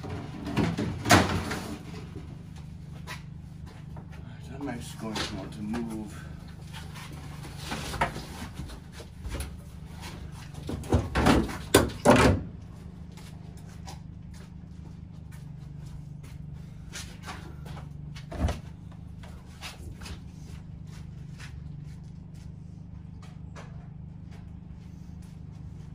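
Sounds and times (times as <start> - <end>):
objects knocking and clattering: 0.0 - 2.2, 10.5 - 12.4
steady low hum: 0.0 - 25.9.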